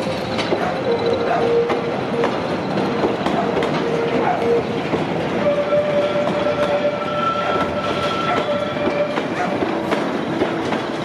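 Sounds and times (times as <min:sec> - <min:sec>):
goods wagons rumbling on rails: 0:00.0 - 0:11.0
wheels clicking over rail joints: 0:00.0 - 0:11.0
high metallic squeal: 0:05.4 - 0:09.2.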